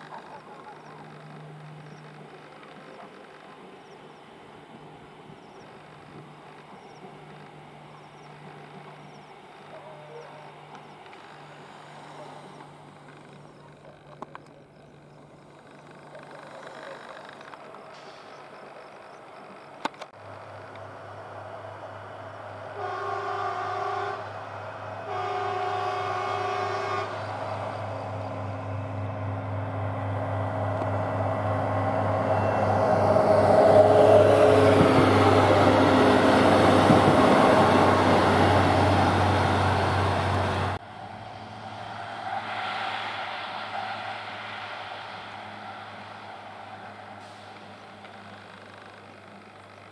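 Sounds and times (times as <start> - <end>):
low engine drone: 0.0 - 49.9
wheels rumbling on rails: 0.0 - 49.9
train horn blasts: 22.7 - 24.4, 25.0 - 27.9.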